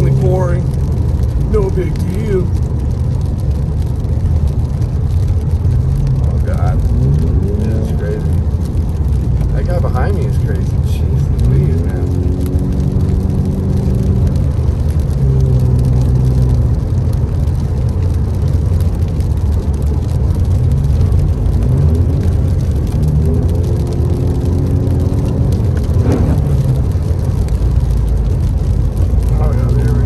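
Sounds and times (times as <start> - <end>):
tyres rumbling on wet road: 0.0 - 30.0
loud car exhaust revving: 11.4 - 17.0, 20.4 - 30.0.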